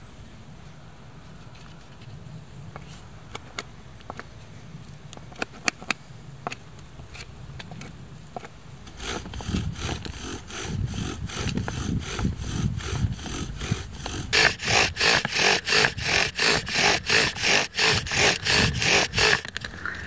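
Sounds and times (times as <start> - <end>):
knife whittling dry wood: 5.2 - 20.0
bow drill rubbing and scraping: 7.1 - 20.0.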